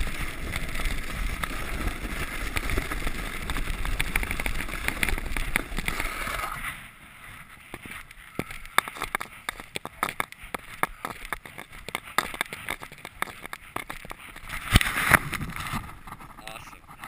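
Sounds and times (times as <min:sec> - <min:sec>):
footsteps on icy snow: 0:00.0 - 0:17.0.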